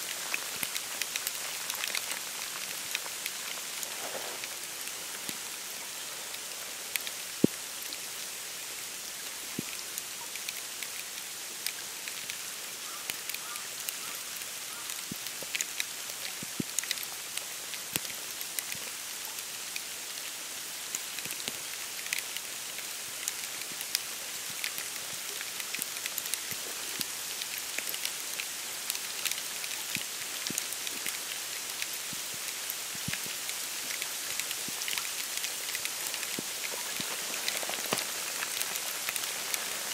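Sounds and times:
snow falling hiss: 0.0s - 39.9s
light ticks and taps: 23.2s - 39.9s.

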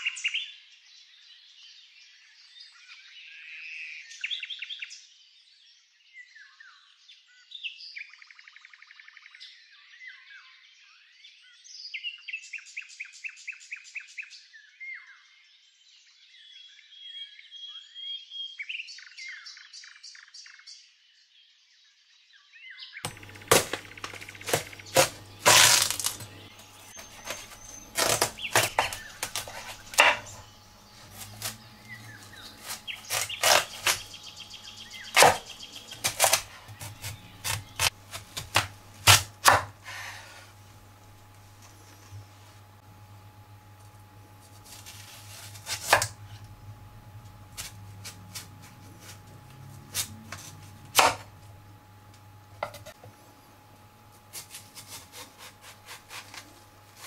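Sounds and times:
birds trilling and chirping: 23.0s - 37.9s
knife cracking through watermelon: 23.1s - 34.1s, 35.1s - 39.8s, 44.6s - 46.5s
low steady hum: 23.1s - 57.0s.

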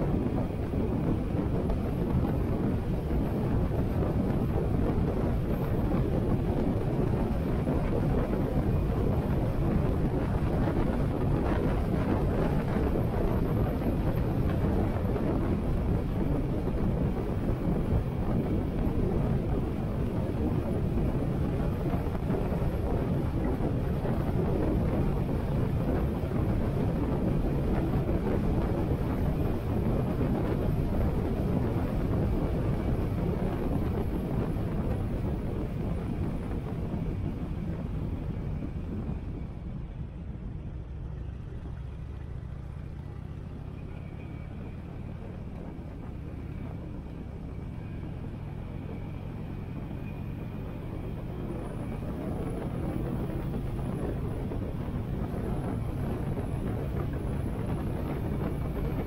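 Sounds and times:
wind rushing over microphone: 0.0s - 59.0s
motorcycle engine running: 40.6s - 50.4s.

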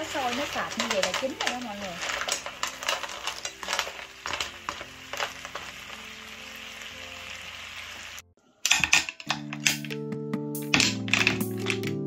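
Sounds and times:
wooden spatulas scraping a pan: 0.0s - 6.1s
snails sizzling in a frying pan: 0.0s - 9.9s
music: 0.0s - 12.0s.

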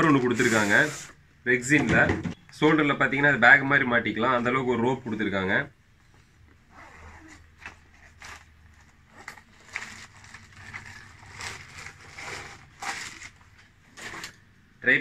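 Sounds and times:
bag and plastic wrapping rustling: 7.9s - 14.4s.

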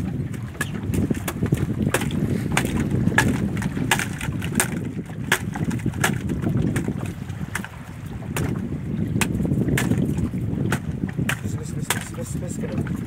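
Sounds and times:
knocks on a boat: 0.0s - 13.0s
sea: 0.0s - 13.0s
wind on microphone: 0.0s - 13.0s.

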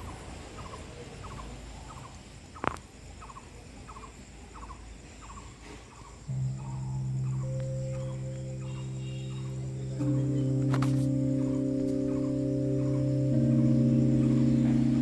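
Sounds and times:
animal chirping: 0.0s - 15.0s
steady low hum: 6.2s - 15.0s.

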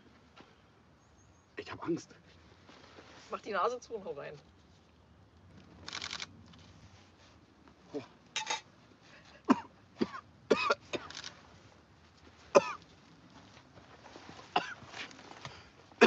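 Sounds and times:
man coughing and gagging: 9.5s - 11.1s, 12.6s - 12.8s, 14.6s - 14.8s.

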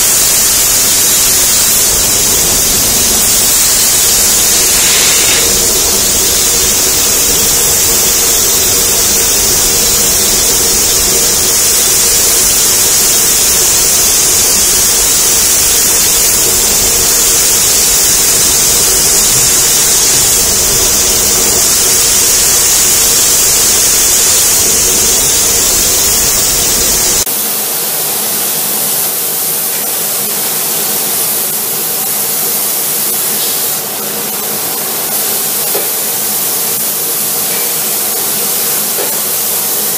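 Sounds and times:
paint spray gun hissing: 0.0s - 39.9s.

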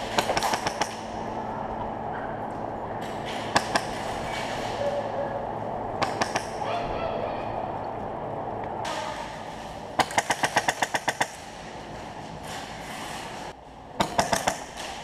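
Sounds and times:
airsoft rifle firing bursts: 10.0s - 11.4s.

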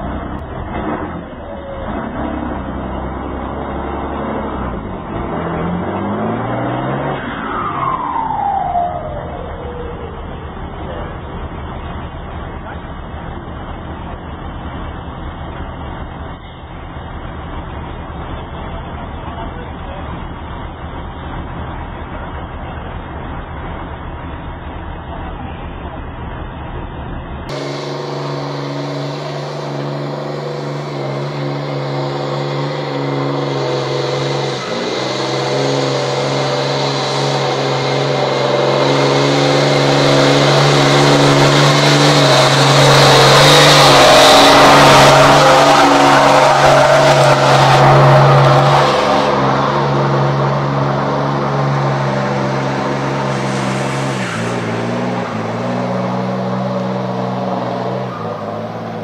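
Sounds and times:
truck diesel engine under load: 0.0s - 59.0s
tyres churning mud: 27.6s - 59.0s.

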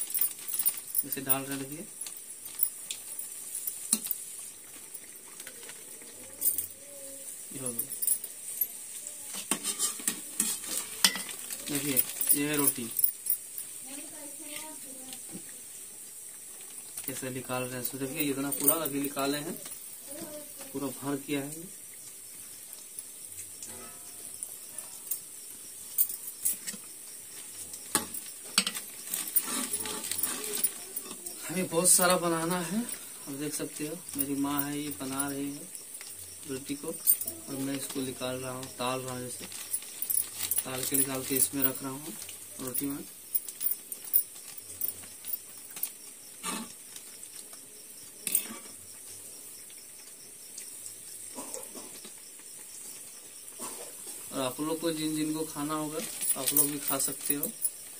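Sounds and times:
rotis sizzling in hot oil: 0.0s - 57.9s
deep-frying sizzle: 1.3s - 5.3s, 13.1s - 26.0s.

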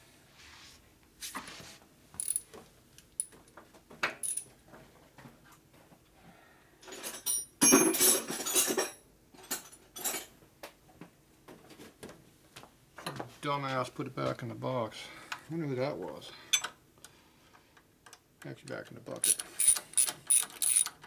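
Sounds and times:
metal hand tools clinking: 2.2s - 2.4s, 4.2s - 4.4s, 19.2s - 21.0s.

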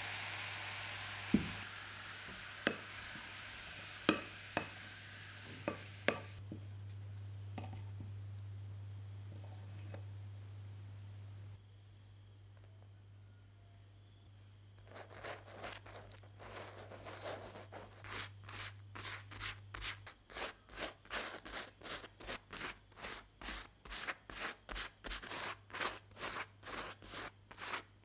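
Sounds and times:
pastry brush strokes on flatbread: 14.8s - 27.9s.

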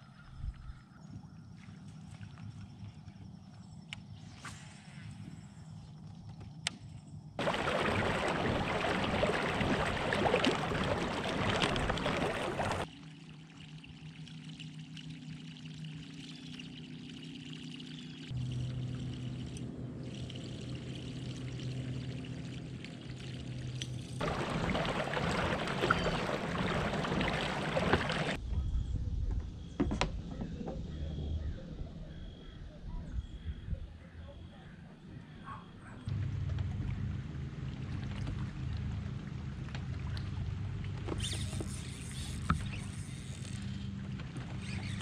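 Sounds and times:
water splashing along kayak hull: 7.4s - 12.9s, 22.3s - 28.4s.

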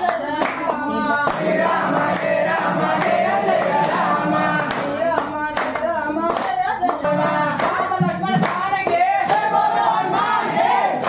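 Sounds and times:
woman singing: 0.0s - 1.7s, 4.1s - 9.6s
group clapping in time: 0.0s - 11.0s.

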